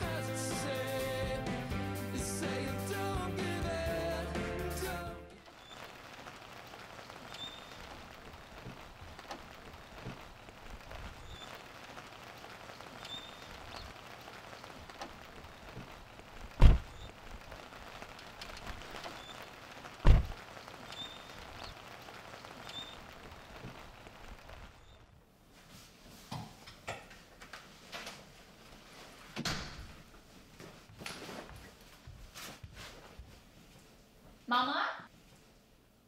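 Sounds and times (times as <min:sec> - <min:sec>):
rain pattering on a car: 0:05.4 - 0:25.2.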